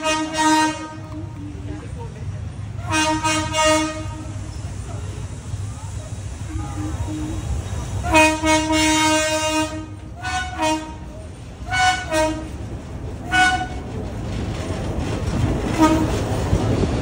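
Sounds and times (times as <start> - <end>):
locomotive horn blasts: 0.0 - 1.4, 2.8 - 4.4, 8.0 - 12.6, 13.3 - 13.8, 15.7 - 16.2
train rumbling: 0.0 - 17.0.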